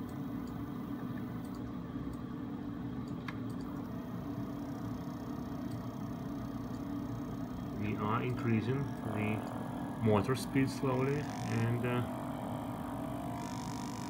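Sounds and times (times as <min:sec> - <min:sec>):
faint high motor whine: 0:00.0 - 0:14.0
electric motor hum: 0:03.7 - 0:14.0.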